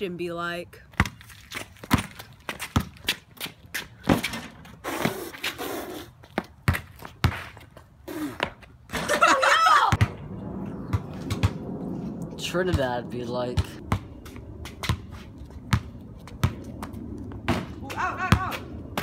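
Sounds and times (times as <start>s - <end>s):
basketball bouncing on concrete: 0.9s - 5.2s, 6.2s - 9.1s, 10.9s - 11.6s, 12.6s - 19.0s
person shouting or laughing: 9.0s - 10.0s.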